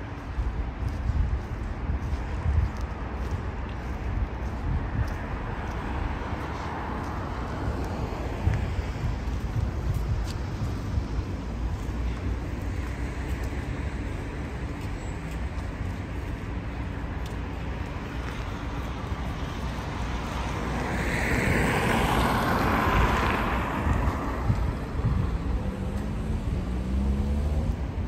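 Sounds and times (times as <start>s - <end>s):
car passing on road: 0.0s - 28.0s
wind rumble on microphone: 0.0s - 28.0s.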